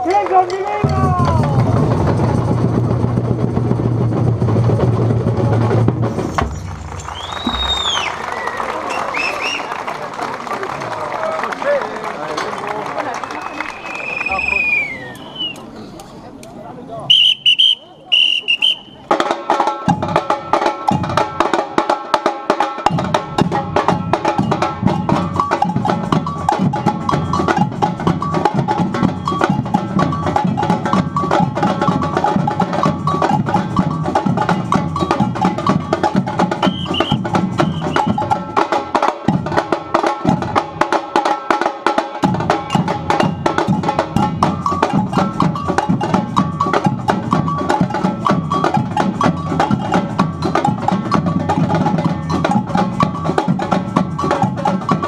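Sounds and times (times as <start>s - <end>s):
snare drums: 0.0s - 9.8s, 17.1s - 55.0s
bass drums: 0.8s - 8.5s
whistle signal: 6.5s - 9.7s, 13.4s - 15.7s, 17.1s - 19.1s, 36.6s - 38.3s.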